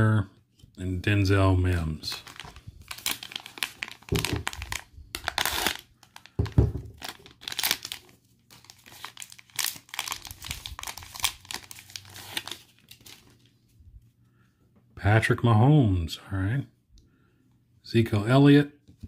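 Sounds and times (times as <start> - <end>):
foil wrapper crinkling and tearing: 2.0 - 13.5.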